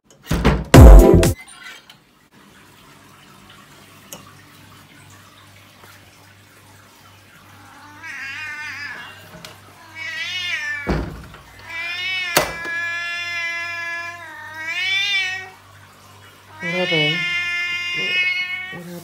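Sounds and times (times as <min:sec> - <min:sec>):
cat meowing: 0:07.6 - 0:11.0, 0:11.6 - 0:15.6, 0:16.5 - 0:19.0.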